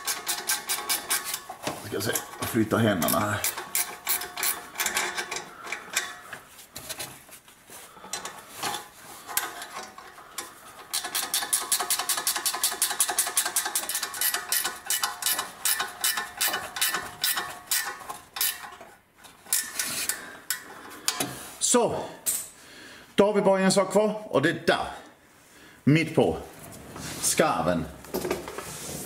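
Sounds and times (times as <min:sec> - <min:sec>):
metallic clinks and knocks: 0:00.0 - 0:06.4
ratchet wrench clicking: 0:10.9 - 0:18.7.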